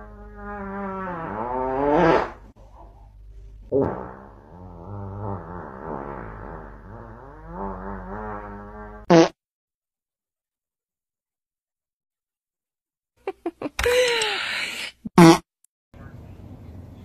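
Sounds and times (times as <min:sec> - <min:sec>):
long wavering fart: 0:00.0 - 0:02.6, 0:03.7 - 0:09.4, 0:15.1 - 0:15.5.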